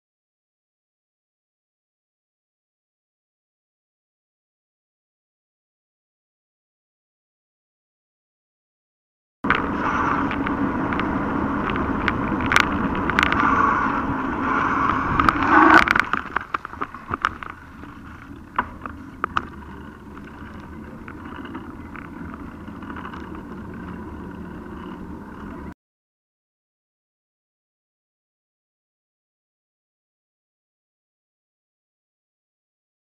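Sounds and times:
wind rushing: 9.4 - 18.2
bike rattling over road: 9.4 - 25.8
tyres on asphalt: 9.4 - 25.8.

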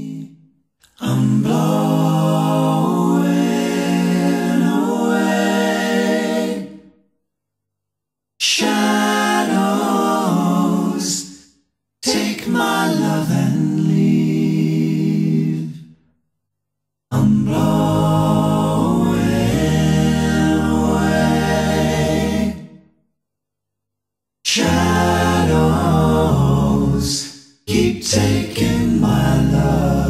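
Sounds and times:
music with singing voices: 24.5 - 30.0.

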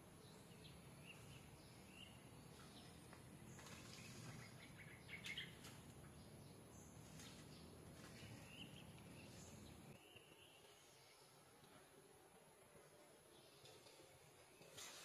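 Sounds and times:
faint bird chirps: 6.8 - 11.9.

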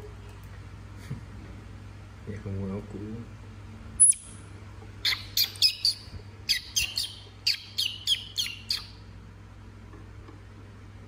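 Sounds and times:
baby squirrels squeaking: 5.0 - 9.0.

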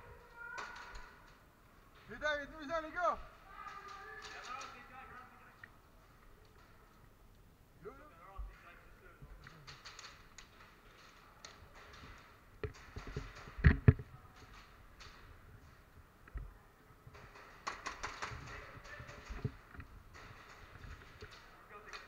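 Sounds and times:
sharp clicks and knocks: 9.4 - 22.0.

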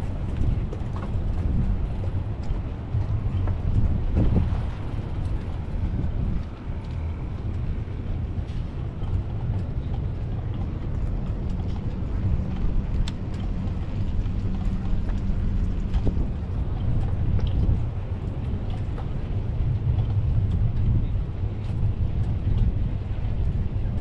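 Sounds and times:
outdoor rumble while cycling: 0.0 - 24.0.

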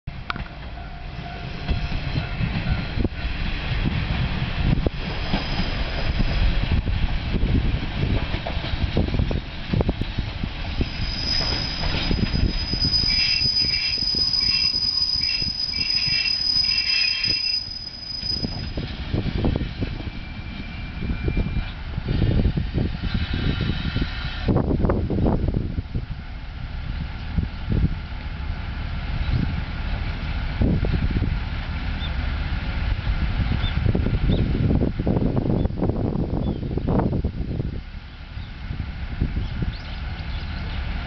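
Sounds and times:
diesel railcar rumble: 0.1 - 41.0
wheels and brakes squealing: 5.3 - 6.3, 10.7 - 18.9, 19.9 - 22.3, 39.4 - 40.8.

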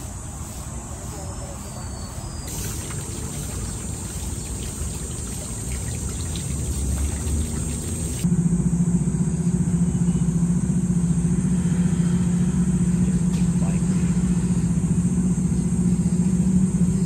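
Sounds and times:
engine hum: 0.0 - 17.0.

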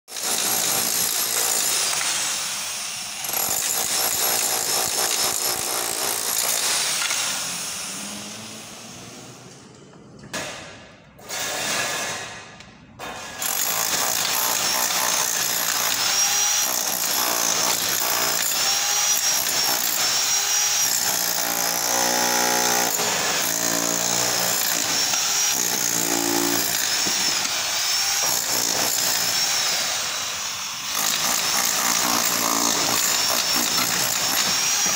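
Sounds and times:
demolition hammer chiselling: 0.1 - 8.0, 9.5 - 34.9.

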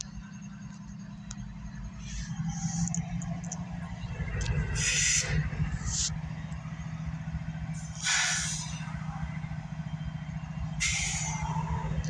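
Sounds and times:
diesel engine idling: 0.0 - 12.0
hiss burst: 8.0 - 8.8, 10.8 - 11.4.

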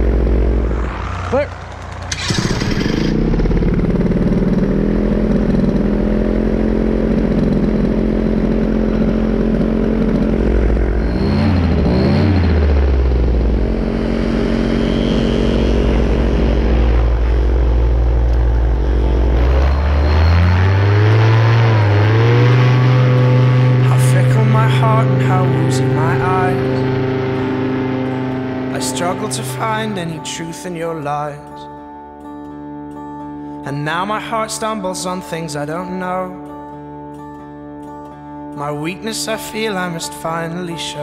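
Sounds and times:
engine and propeller running: 0.0 - 32.7.

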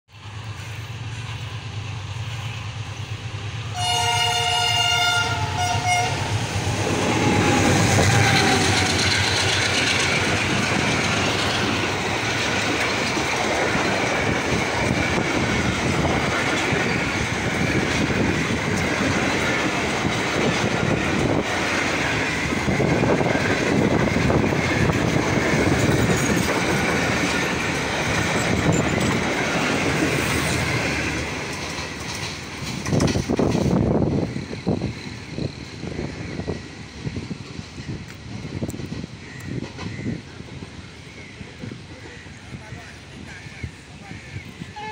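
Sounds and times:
locomotive horn: 3.7 - 9.0
train wheels clattering over rail joints: 6.5 - 42.2.

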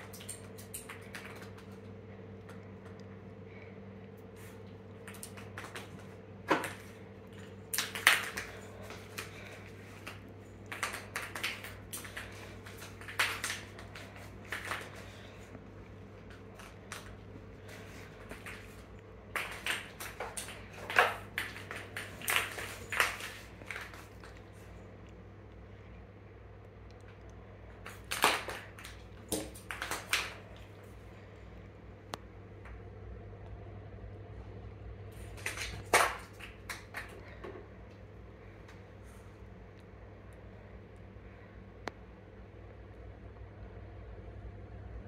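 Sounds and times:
dog claws clicking on floor: 0.0 - 3.1, 4.4 - 15.6, 16.2 - 24.6, 27.8 - 30.7, 35.1 - 37.5
steady low hum: 0.0 - 45.0
toy clattering on hard floor: 10.0 - 15.2, 17.7 - 24.4.

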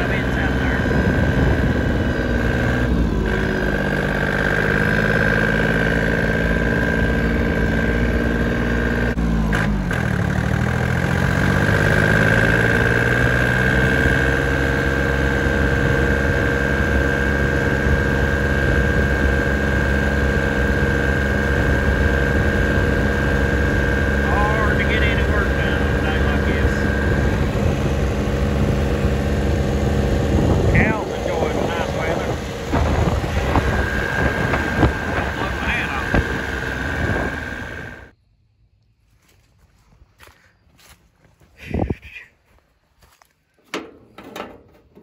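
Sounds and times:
tractor diesel engine running: 0.0 - 38.2, 39.1 - 45.0
steady high whine: 14.5 - 38.2.

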